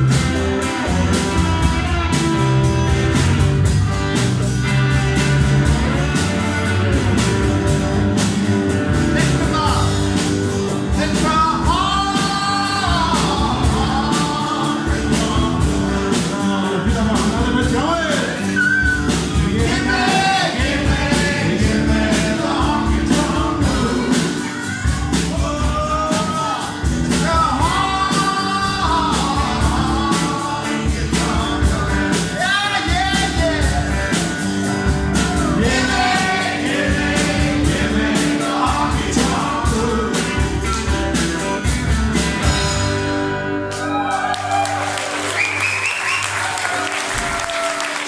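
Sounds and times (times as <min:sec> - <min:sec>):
lead vocals: 0:00.0 - 0:03.1, 0:07.9 - 0:41.4
steady drum beat: 0:00.0 - 0:43.4
strummed acoustic guitars: 0:00.0 - 0:43.9
bass guitar: 0:00.0 - 0:48.0
electric guitar: 0:00.0 - 0:48.0.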